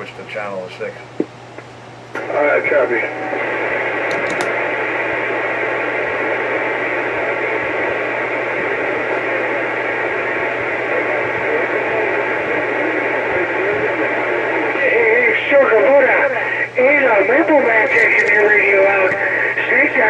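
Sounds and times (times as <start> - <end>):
radio static hiss: 0.0 - 20.0
low hum: 1.2 - 15.3.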